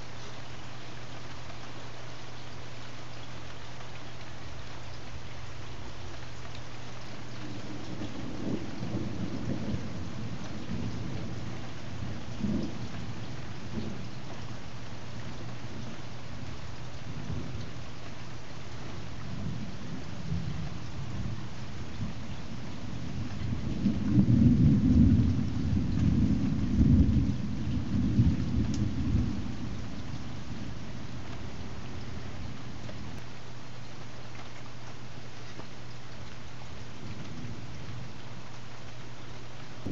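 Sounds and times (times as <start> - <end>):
rain falling: 0.0 - 39.9
thunder rumbling: 7.4 - 14.4, 19.2 - 33.2, 36.9 - 38.5.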